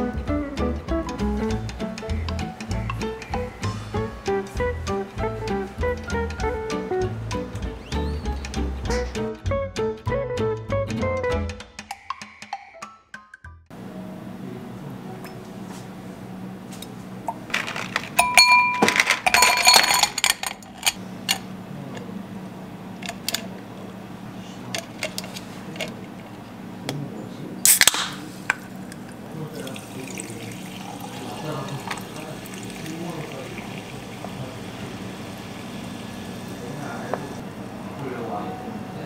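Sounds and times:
ice cubes clinking in glass: 17.5s - 21.0s
sharp crack: 27.7s - 28.3s
sparkling water fizzing: 29.5s - 37.4s.

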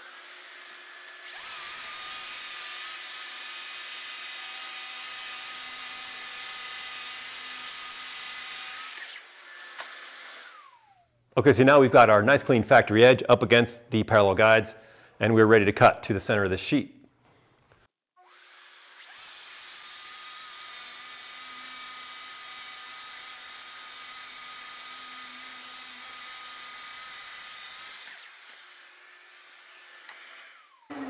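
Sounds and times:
circular saw cutting plywood: 0.0s - 11.0s, 18.2s - 31.0s
dust extractor running: 30.7s - 31.0s.

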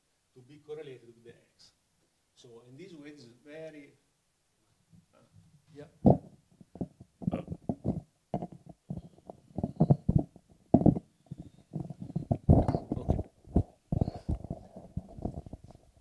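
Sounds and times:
microphone handling noise: 6.0s - 16.0s.

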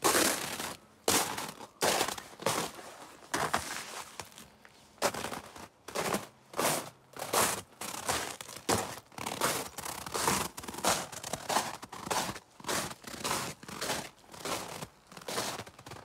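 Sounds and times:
footsteps crunching in snow: 0.0s - 16.0s.

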